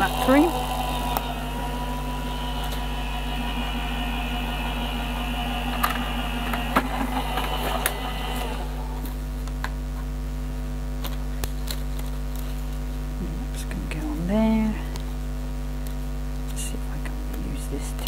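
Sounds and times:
machine motor hum: 0.0 - 9.7.

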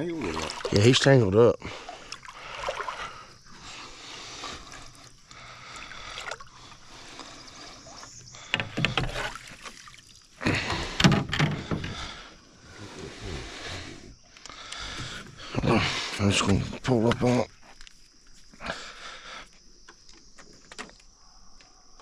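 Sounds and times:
water splashing against boat: 0.0 - 12.3.

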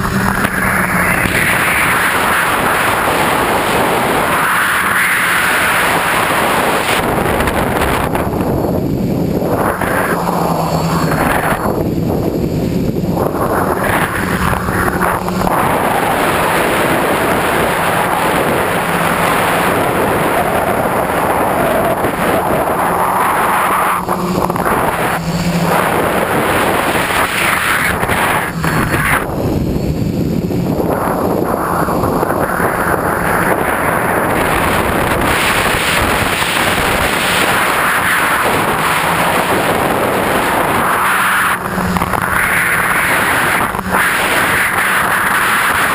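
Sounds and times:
drone motors and propellers humming: 0.0 - 45.9
wind rushing over microphone: 0.0 - 45.9.

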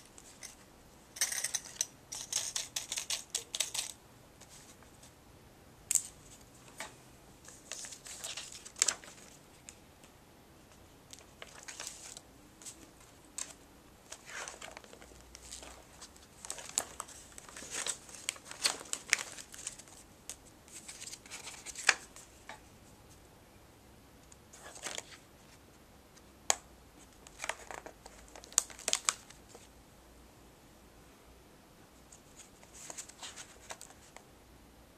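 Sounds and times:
paper rustling and crinkling: 6.3 - 9.7, 11.1 - 22.5, 24.5 - 25.2, 27.2 - 29.7, 32.2 - 34.2.

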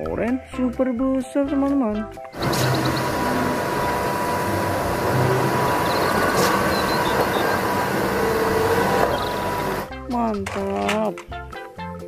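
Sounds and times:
diesel truck engine running: 2.4 - 9.9
street noise: 2.4 - 9.9.

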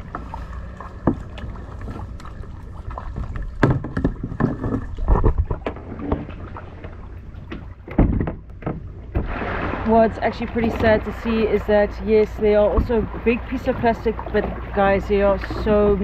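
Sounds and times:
low wind rumble: 0.0 - 16.0
paddle splashes: 0.0 - 16.0
knocks against plastic hull: 3.5 - 6.3, 7.5 - 9.4.

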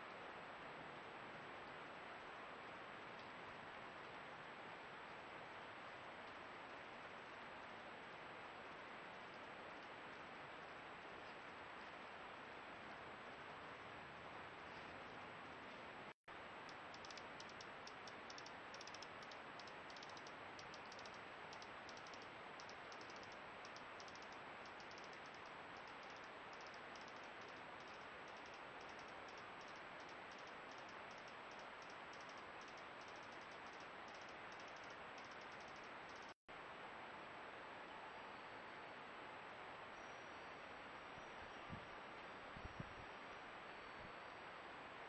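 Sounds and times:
recording hiss: 0.0 - 45.0
faint high-pitched ticking: 2.4 - 15.9, 16.6 - 36.4.

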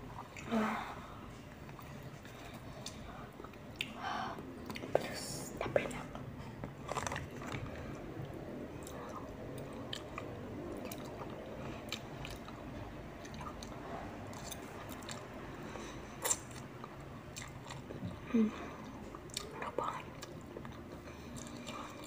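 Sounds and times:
chewing noodles: 6.7 - 15.5, 16.2 - 22.0.

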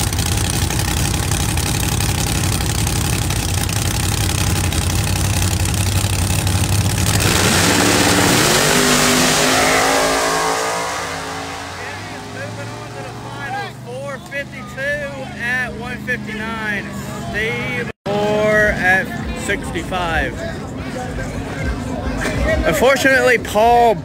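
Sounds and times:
race car engines revving: 0.0 - 24.0.

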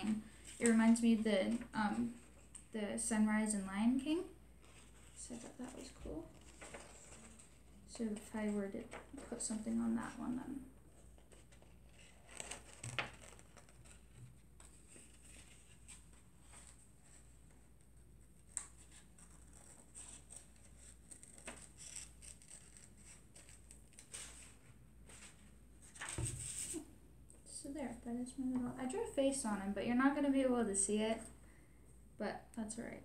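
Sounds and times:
paper rustling: 4.6 - 26.9.

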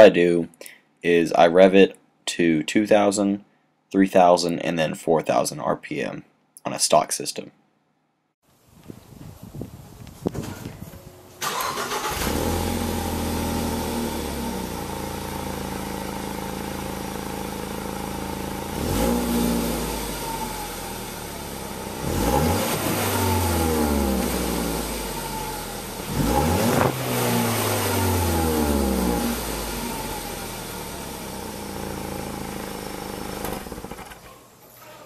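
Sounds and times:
car engine idling and revving: 11.4 - 34.3.

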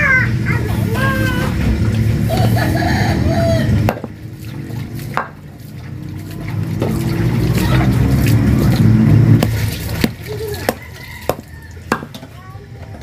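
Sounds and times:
knife chopping meat on wood: 3.9 - 4.2, 5.2 - 5.5, 9.4 - 12.2.

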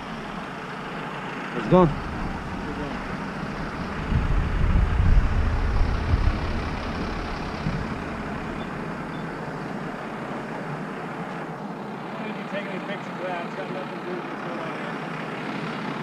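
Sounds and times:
motorcycle engine running: 0.0 - 16.0
loud low rumble: 1.7 - 10.9.

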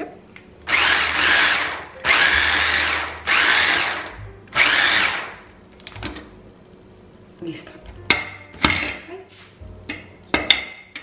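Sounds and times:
electric mini chopper whirring: 0.7 - 5.4.

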